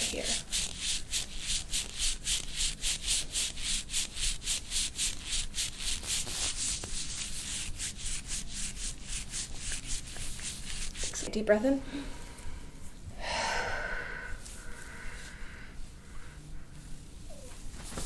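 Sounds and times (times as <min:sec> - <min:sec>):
rhythmic rubbing strokes: 0:00.0 - 0:11.8.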